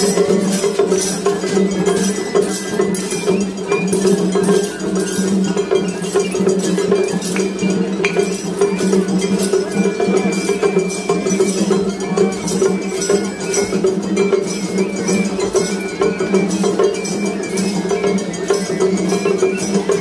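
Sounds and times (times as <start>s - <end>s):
hand gong clanging: 0.0s - 13.9s
bamboo flute playing: 0.0s - 20.0s.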